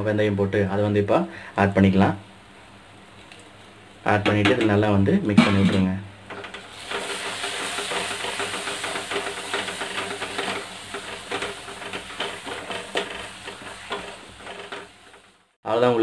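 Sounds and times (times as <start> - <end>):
spatula scraping and knocking pan: 5.4 - 15.6
paste sizzling in oil: 6.4 - 15.6.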